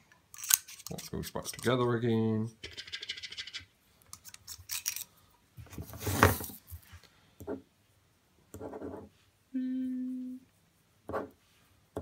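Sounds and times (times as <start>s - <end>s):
pen scratching on paper: 8.6s - 9.1s, 11.1s - 11.4s.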